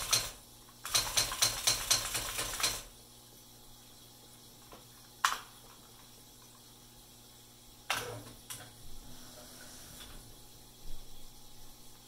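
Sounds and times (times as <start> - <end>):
typewriter clacks: 0.0 - 2.9
typewriter motor whir: 0.0 - 2.9.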